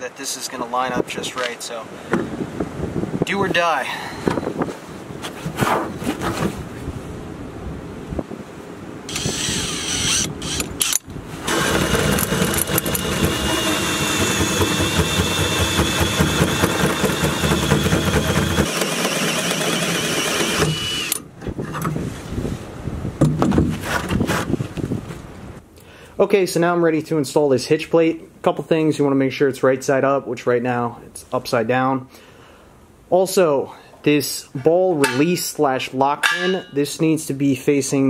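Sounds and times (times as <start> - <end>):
cordless drill cutting steel: 9.1 - 21.2.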